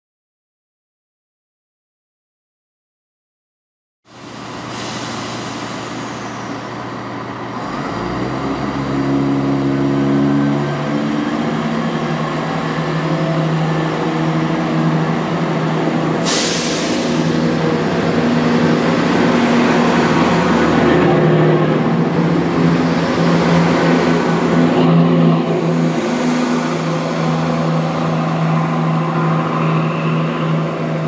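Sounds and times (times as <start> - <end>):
diesel train engines droning: 4.1 - 31.0
short sharp hiss: 16.2 - 17.5.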